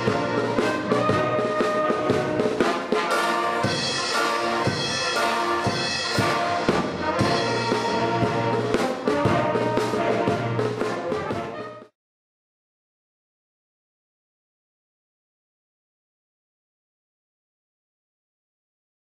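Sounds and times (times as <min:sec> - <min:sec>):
brass band playing lively tune: 0:00.0 - 0:12.0
drums: 0:00.0 - 0:12.0.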